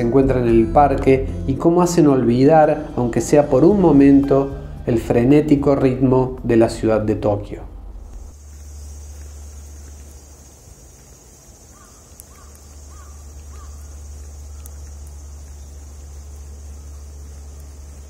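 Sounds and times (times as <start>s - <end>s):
low background rumble: 4.5s - 18.0s
steady high hiss: 6.5s - 18.0s
crow cawing: 11.7s - 14.9s.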